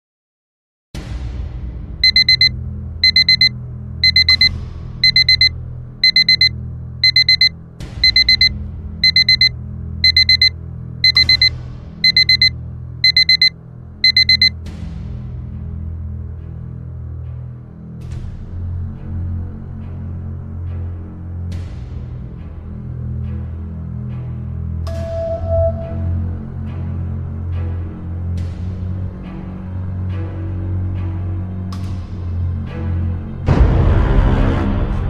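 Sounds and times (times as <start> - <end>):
digital alarm beeping: 2.0 - 14.5.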